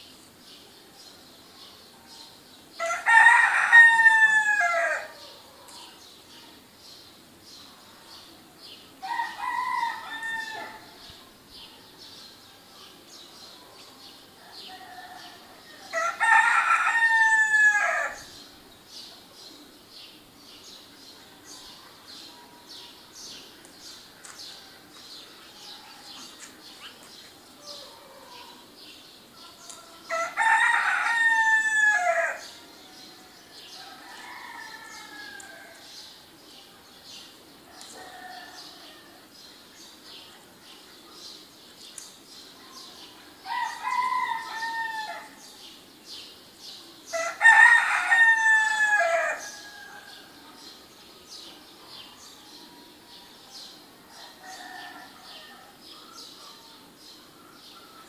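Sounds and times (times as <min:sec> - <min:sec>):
songbirds chirping: 0:00.0 - 0:58.0
rooster crowing: 0:02.8 - 0:05.3, 0:09.0 - 0:11.0, 0:14.5 - 0:18.3, 0:30.1 - 0:32.5, 0:33.7 - 0:35.9, 0:37.8 - 0:39.2, 0:43.4 - 0:45.4, 0:47.1 - 0:50.2.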